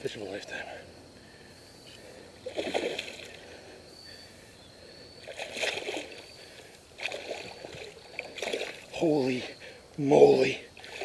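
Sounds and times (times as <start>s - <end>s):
fish splashing at water surface: 2.4s - 3.4s, 7.0s - 8.9s.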